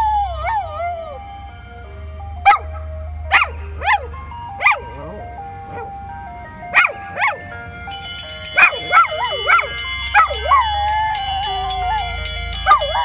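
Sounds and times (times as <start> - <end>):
small dog howling: 0.0 - 1.4, 8.6 - 13.0
ice cream truck electronic jingle: 0.0 - 13.0.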